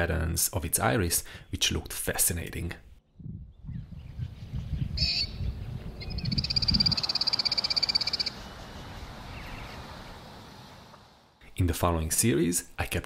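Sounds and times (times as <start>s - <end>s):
low rumble: 3.1s - 7.0s.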